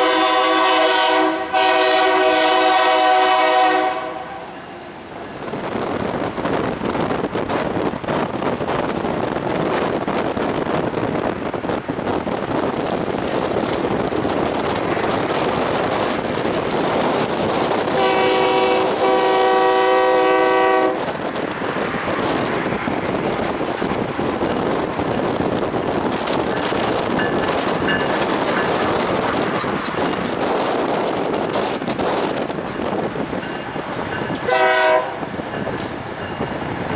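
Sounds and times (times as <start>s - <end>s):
locomotive horn blasts: 0.0s - 4.6s, 18.0s - 21.0s, 34.3s - 35.3s
freight train rumbling past: 0.0s - 36.9s.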